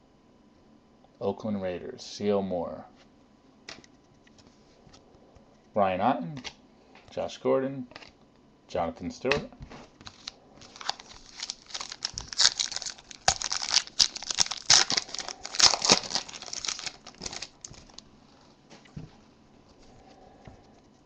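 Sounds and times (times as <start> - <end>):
foil wrapper tearing and crinkling: 10.0 - 18.0.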